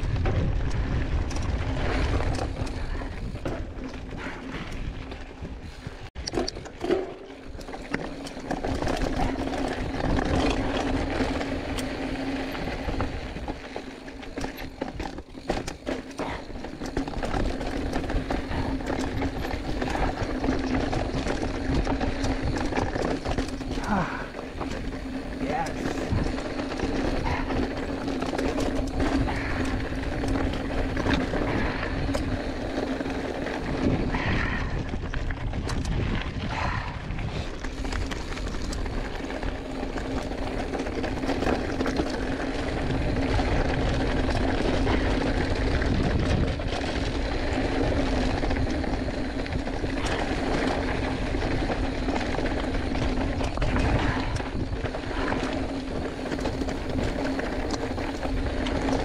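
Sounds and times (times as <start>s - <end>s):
wind rush on microphone: 0.0s - 6.1s, 16.2s - 59.0s
mountain bike tyres on dirt trail: 0.0s - 59.0s
stones and bike rattling: 0.0s - 59.0s.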